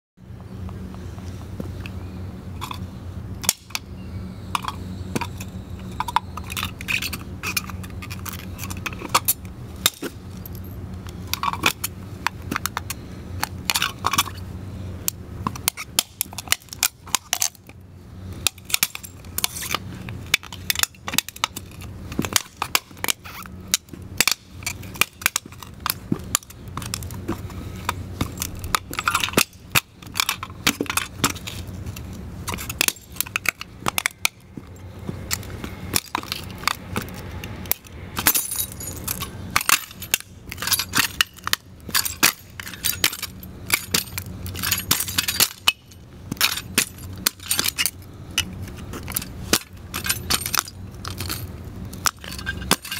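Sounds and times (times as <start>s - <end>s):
ceramic and metal cracking: 27.9s - 48.0s, 49.0s - 52.9s.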